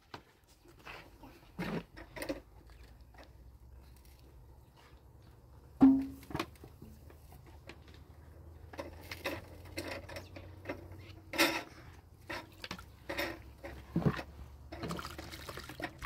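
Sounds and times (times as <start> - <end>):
metal dishes knocking and scraping: 5.8 - 6.3.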